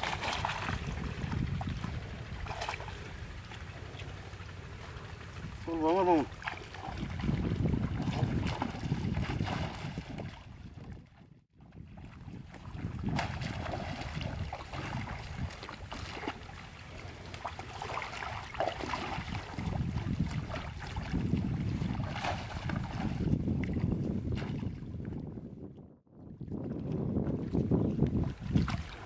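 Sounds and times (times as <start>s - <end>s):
water splashing in stream: 0.0s - 11.2s, 12.0s - 24.8s, 26.6s - 29.0s
wind rumbling on microphone: 0.0s - 29.0s.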